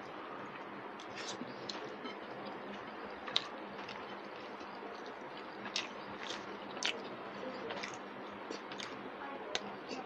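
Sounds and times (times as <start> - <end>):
eating clicks and smacks: 1.0 - 9.7.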